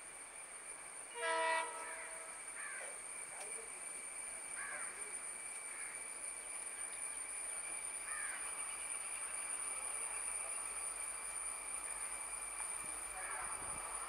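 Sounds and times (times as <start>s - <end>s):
distant train approaching: 0.0s - 14.0s
crow cawing: 2.6s - 2.8s, 4.6s - 4.9s, 8.1s - 8.4s.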